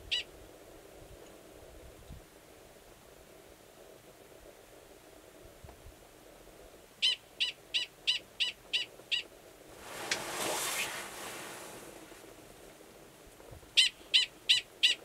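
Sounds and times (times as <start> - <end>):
rushing noise: 9.7 - 12.4.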